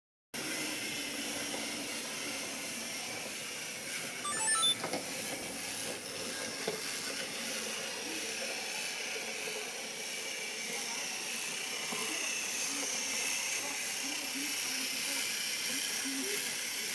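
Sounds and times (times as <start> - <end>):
short electronic beeps: 4.3 - 4.8.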